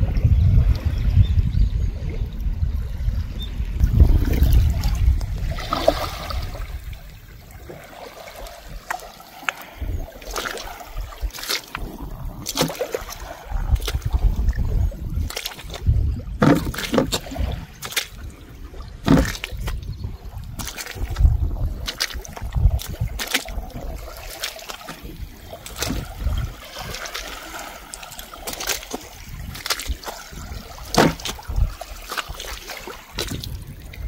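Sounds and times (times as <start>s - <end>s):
wind rumbling on microphone: 0.0s - 34.0s
footsteps in wet mud: 8.3s - 18.4s, 19.0s - 34.0s.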